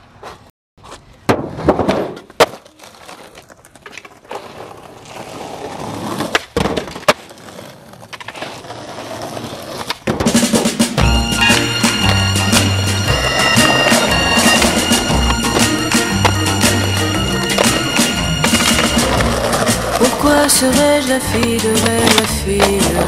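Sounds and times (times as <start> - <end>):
skateboards rolling on asphalt: 0.1 - 23.0
skateboard pops and clacks: 1.2 - 4.6, 6.1 - 8.7, 9.6 - 10.8.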